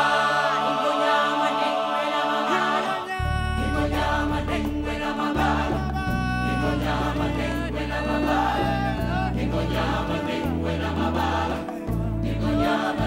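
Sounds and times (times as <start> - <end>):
choir singing: 0.0 - 13.0
long held bass notes: 3.2 - 13.0.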